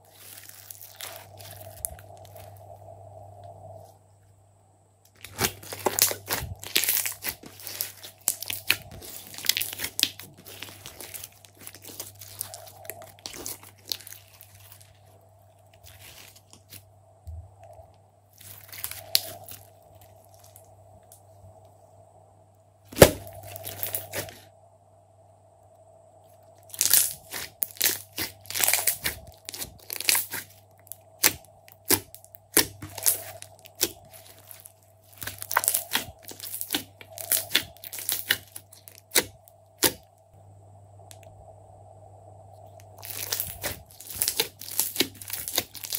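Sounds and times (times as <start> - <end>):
faint steady hum: 0.0 - 45.9
slime crackling and popping: 0.1 - 2.5, 5.1 - 15.0, 18.4 - 20.6, 22.9 - 24.4, 26.7 - 40.0, 43.0 - 45.9.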